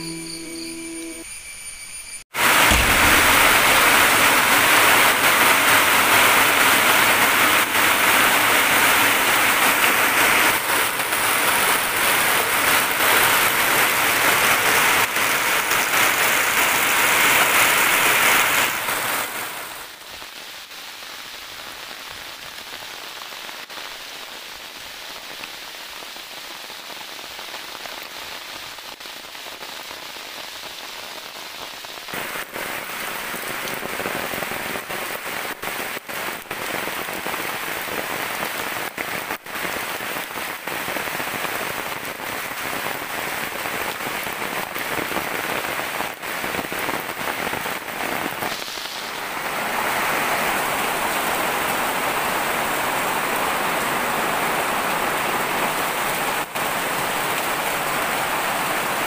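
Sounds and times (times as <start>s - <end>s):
heavy rain hiss: 0.0s - 1.2s, 2.4s - 59.0s.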